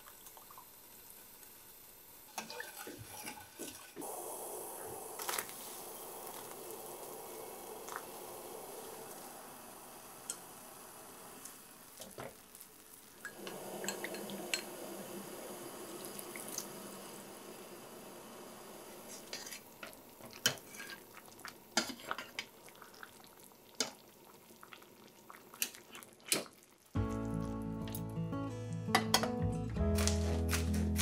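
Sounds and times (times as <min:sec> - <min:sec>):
broth bubbling in a saucepan: 0:00.0 - 0:27.6.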